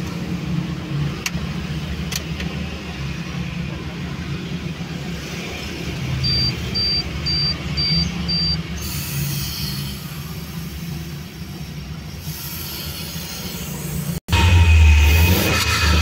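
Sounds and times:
car engine idling: 6.8s - 16.0s
aerosol spray hissing: 12.2s - 14.2s.

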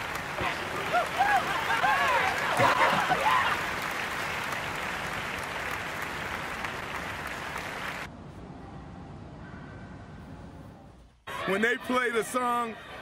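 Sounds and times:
crowd applauding: 0.0s - 8.1s.

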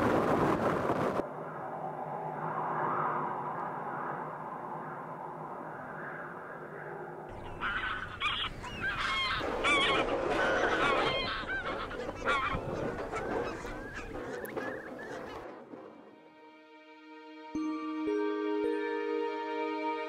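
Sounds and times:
geese honking: 7.3s - 15.4s.

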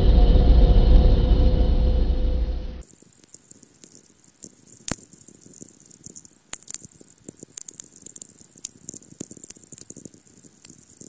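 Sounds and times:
radio crackling clicks and pops: 2.8s - 11.0s
steady high radio hiss: 2.8s - 11.0s.

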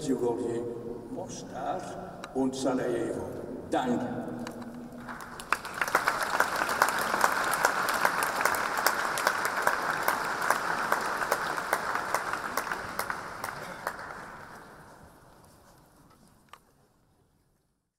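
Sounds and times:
audience applauding: 5.0s - 14.9s.

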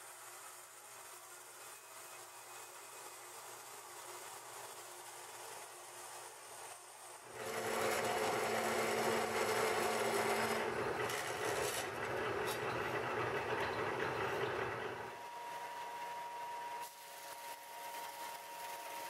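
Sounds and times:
bandsaw cutting steel: 6.3s - 15.3s.

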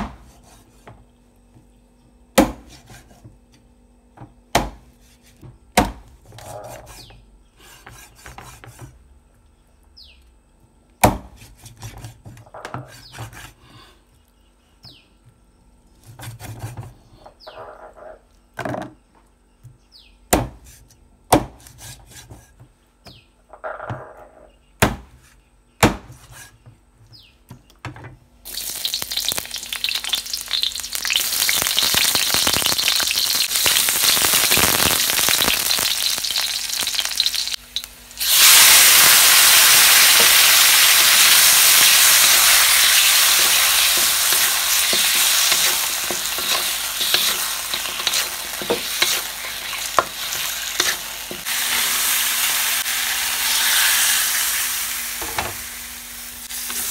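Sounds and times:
cleaver chopping on wooden block: 2.4s - 2.8s, 20.3s - 20.6s, 21.3s - 21.6s
onion sizzling in hot oil: 28.4s - 56.9s.

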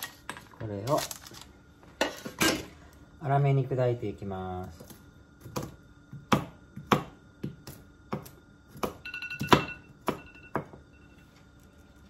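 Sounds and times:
knife chopping nuts on board: 4.7s - 10.8s.

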